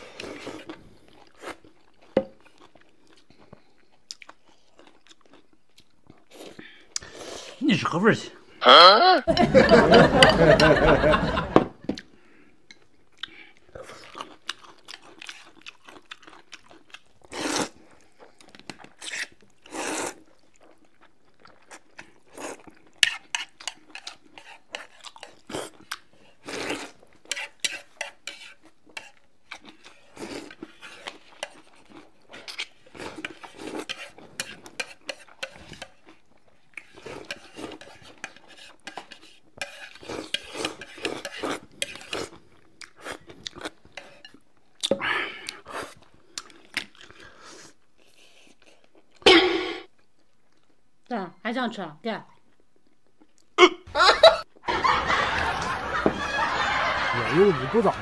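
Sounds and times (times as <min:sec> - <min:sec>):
slurping noodles: 0:17.2 - 0:20.4, 0:21.7 - 0:35.8, 0:36.8 - 0:44.2.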